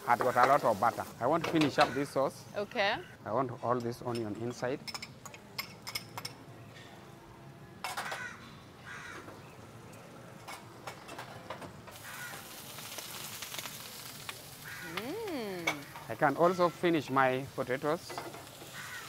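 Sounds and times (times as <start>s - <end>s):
onion sizzling in a pan: 0.0s - 2.4s, 11.9s - 19.0s
crow cawing: 8.0s - 9.3s, 12.0s - 12.5s, 14.6s - 15.1s, 18.7s - 19.0s.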